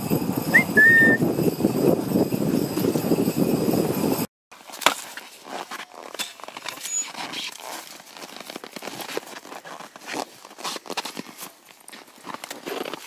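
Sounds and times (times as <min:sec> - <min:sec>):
dog sled rushing over snow: 0:00.0 - 0:04.3
footsteps crunching on snow: 0:04.6 - 0:13.0.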